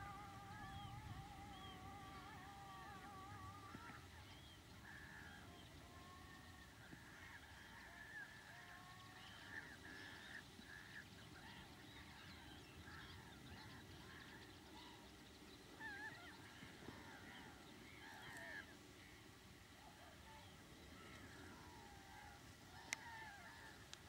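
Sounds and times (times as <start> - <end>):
loud wavering bird call: 0.0 - 10.8, 15.7 - 18.7
distant birds honking: 0.0 - 24.0.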